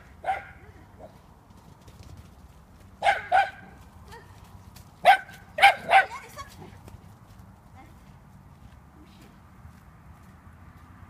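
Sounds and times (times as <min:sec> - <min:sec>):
dog barking: 0:00.2 - 0:00.6, 0:03.0 - 0:03.8, 0:05.0 - 0:06.2.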